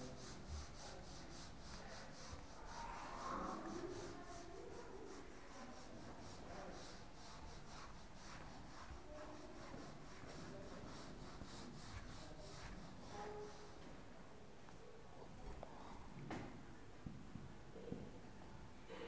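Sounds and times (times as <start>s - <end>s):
duster rubbing on whiteboard: 0.0s - 14.0s.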